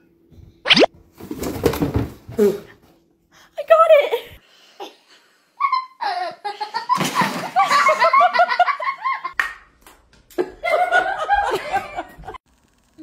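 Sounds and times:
people laughing and giggling: 5.6 - 9.4, 10.3 - 12.4.

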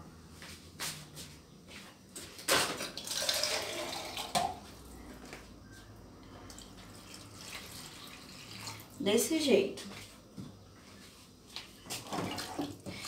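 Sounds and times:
water running from a tap: 6.6 - 9.0.

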